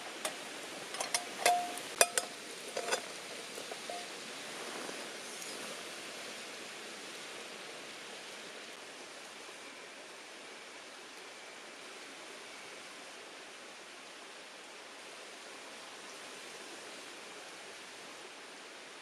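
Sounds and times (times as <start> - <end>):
sharp metallic clinks: 0.9 - 4.1.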